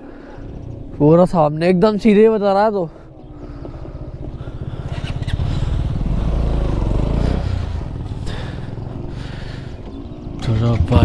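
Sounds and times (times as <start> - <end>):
motorcycle engine pulling away: 3.3 - 11.0.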